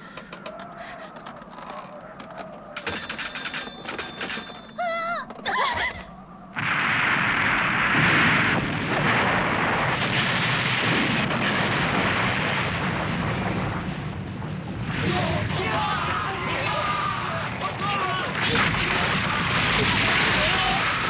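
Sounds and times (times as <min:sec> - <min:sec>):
building explosion roar: 0:06.5 - 0:21.0.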